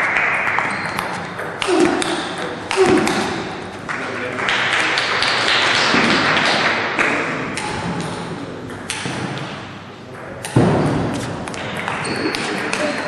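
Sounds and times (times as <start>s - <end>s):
ping-pong ball taps: 11.5s - 13.0s.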